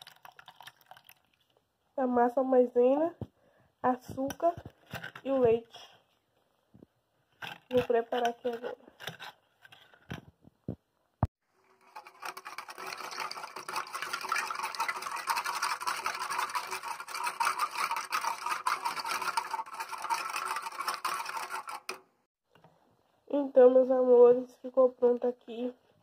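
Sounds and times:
spoon scraping a saucepan: 0:11.7 - 0:22.0.

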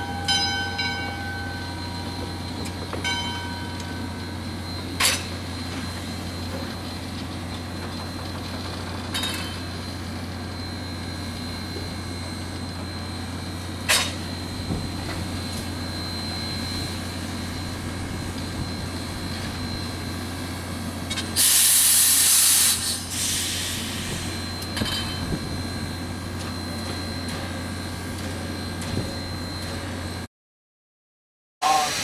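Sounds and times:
brief steam puff: 0:21.4 - 0:24.3
steam hissing: 0:21.4 - 0:24.4, 0:31.6 - 0:32.0.

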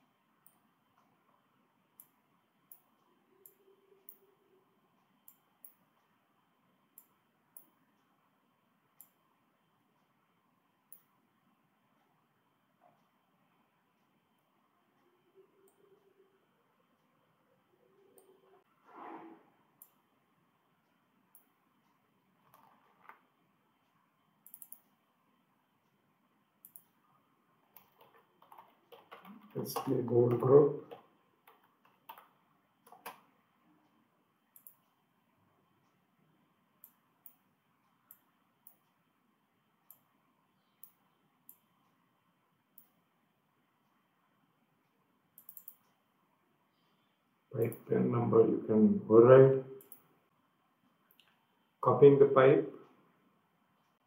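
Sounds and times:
computer mouse clicks: 0:05.2 - 0:05.8, 0:09.0 - 0:09.2, 0:22.4 - 0:23.2, 0:24.4 - 0:24.9, 0:26.6 - 0:27.0, 0:27.7 - 0:33.3, 0:34.5 - 0:35.0, 0:36.8 - 0:37.4, 0:45.4 - 0:46.0, 0:49.8 - 0:50.0.

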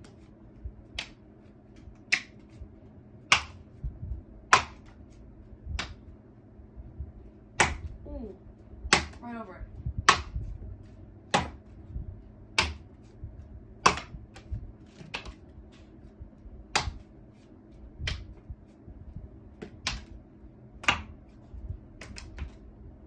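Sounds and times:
playing cards snapping: 0:00.9 - 0:01.2, 0:02.0 - 0:02.6, 0:13.8 - 0:15.4, 0:18.1 - 0:18.3, 0:19.6 - 0:20.2, 0:22.0 - 0:22.6.

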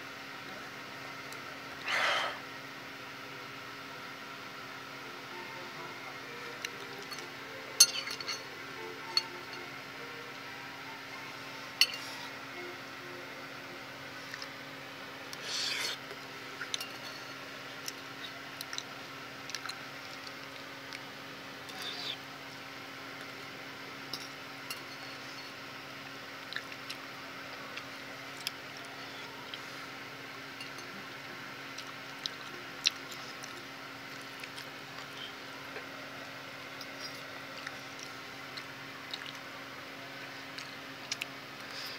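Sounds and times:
faint steady hum: 0:00.0 - 0:41.9
fork clinking on ceramic bowl: 0:07.8 - 0:08.5, 0:11.8 - 0:12.1.

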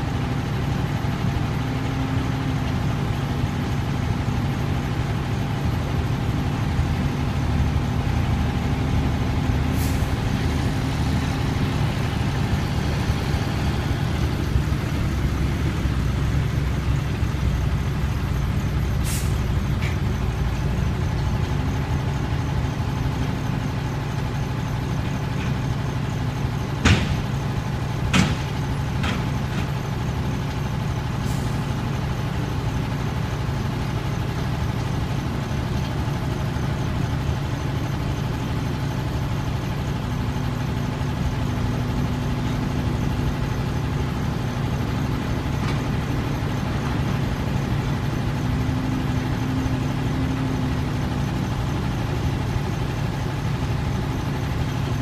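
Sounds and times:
heavy diesel engines rumbling: 0:00.0 - 0:55.0
sharp knocks: 0:26.8 - 0:27.2, 0:28.1 - 0:29.2.

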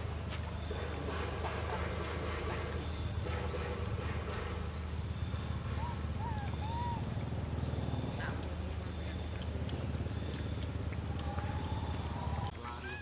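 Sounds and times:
rising-and-falling monkey calls: 0:05.8 - 0:07.2, 0:11.1 - 0:13.0.

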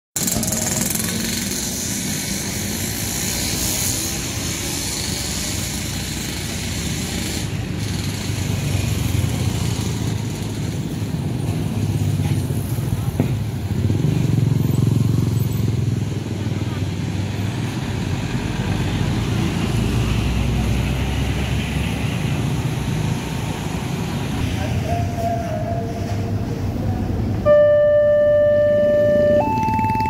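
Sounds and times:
motorcycles and cars passing: 0:00.2 - 0:27.5, 0:28.2 - 0:30.0.

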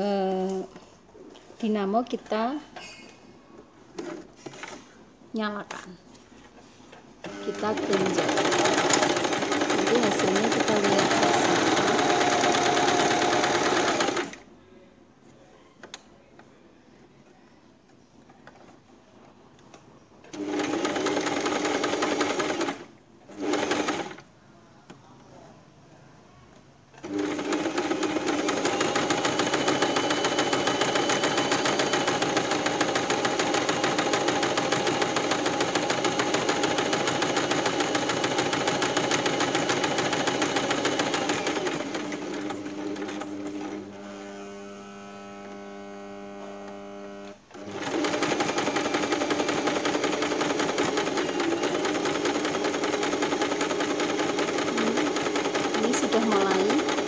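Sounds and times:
electric sewing machine running: 0:07.2 - 0:14.4, 0:20.3 - 0:24.2, 0:27.0 - 0:57.0.

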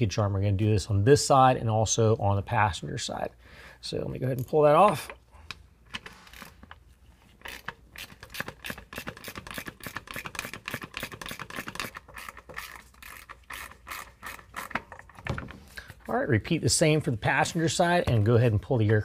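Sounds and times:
ratchet wrench clicking: 0:07.4 - 0:15.0.

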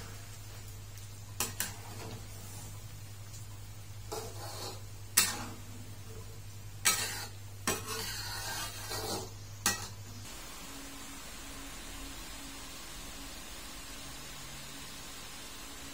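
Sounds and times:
steady low hum: 0:00.0 - 0:15.9
ladle scraping through curry: 0:06.9 - 0:09.3.

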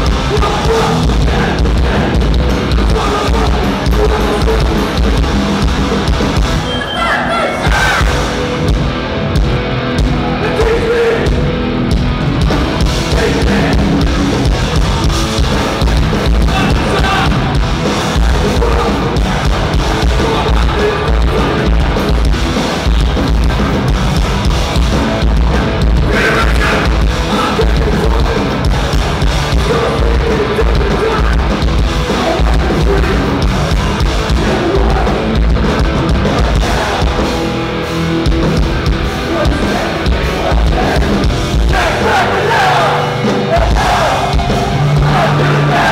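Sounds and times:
shouted vocals: 0:00.0 - 0:04.9, 0:06.6 - 0:08.4, 0:16.4 - 0:22.0, 0:26.1 - 0:28.6, 0:39.2 - 0:45.9
pounding drum kit: 0:00.0 - 0:06.7, 0:07.6 - 0:45.9
distorted electric guitars: 0:00.0 - 0:45.9.

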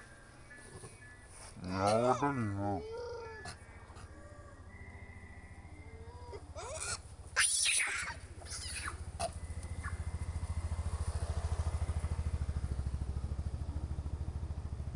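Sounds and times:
monkeys squealing and screeching: 0:06.0 - 0:10.1.

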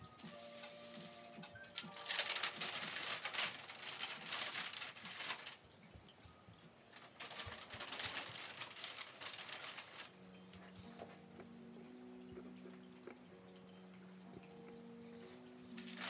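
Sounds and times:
soft background music low notes: 0:00.0 - 0:16.0
scratchy rustling: 0:00.2 - 0:05.6, 0:07.0 - 0:10.2.

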